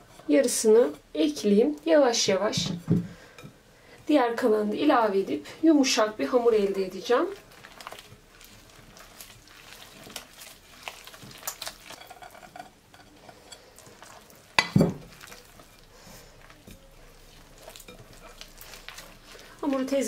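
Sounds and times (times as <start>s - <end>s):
hands squishing dough: 5.1s - 20.0s.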